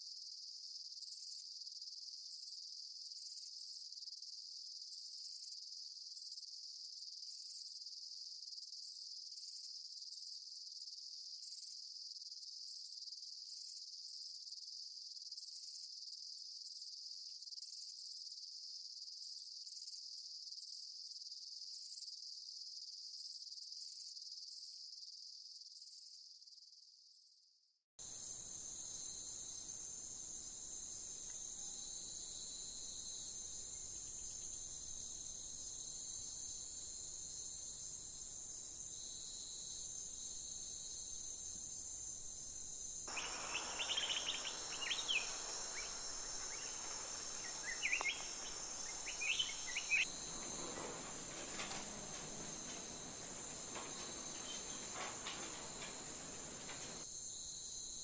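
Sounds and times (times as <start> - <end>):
short sharp chirps: 43.1 - 50.1
high-pitched insect trilling: 43.1 - 57.0.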